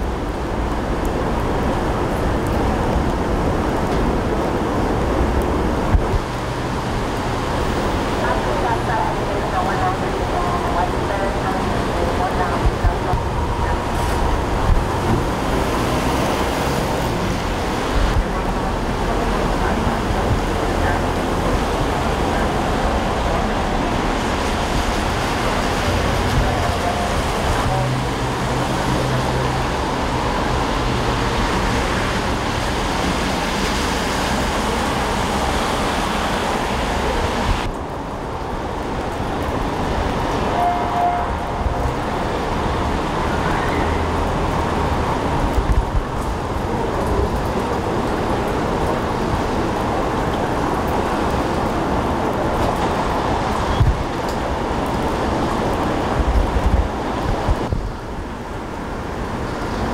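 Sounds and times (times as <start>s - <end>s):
traffic hissing on wet road: 0.0s - 59.9s.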